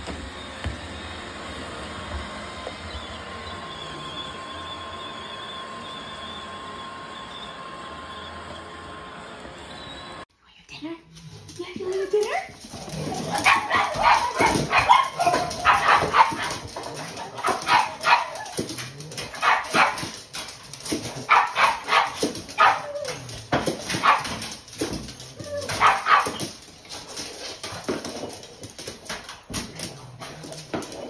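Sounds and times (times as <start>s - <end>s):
dogs barking and yapping: 12.2s - 31.0s.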